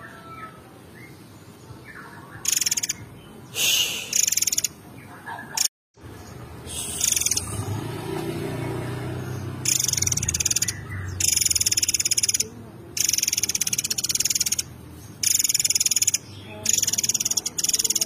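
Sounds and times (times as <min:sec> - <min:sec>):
songbird rattling trills: 0:02.4 - 0:03.0, 0:04.1 - 0:04.8, 0:06.8 - 0:07.7, 0:09.4 - 0:18.0.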